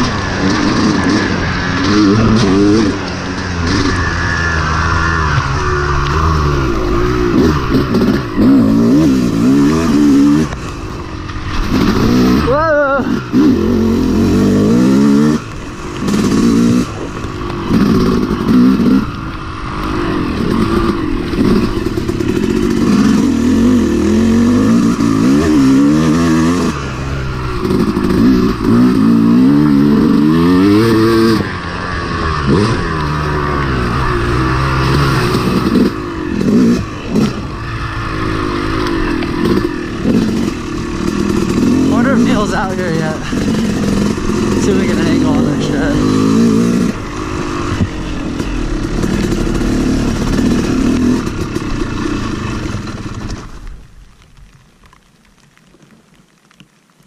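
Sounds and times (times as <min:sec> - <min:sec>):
dirt bike engine revving: 0:00.0 - 0:53.7.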